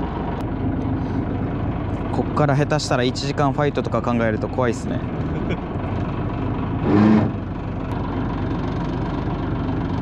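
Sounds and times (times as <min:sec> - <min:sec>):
boat engine idling: 0:00.0 - 0:10.0.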